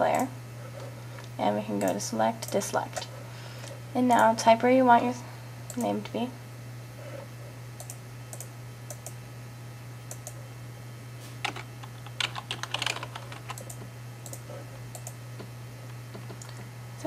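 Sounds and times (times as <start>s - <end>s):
steady low hum: 0.0s - 17.0s
typing on computer keyboard: 11.5s - 14.4s.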